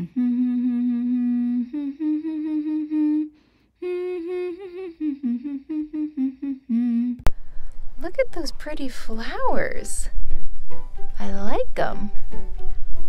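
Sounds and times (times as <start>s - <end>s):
woman humming: 0.0s - 7.3s.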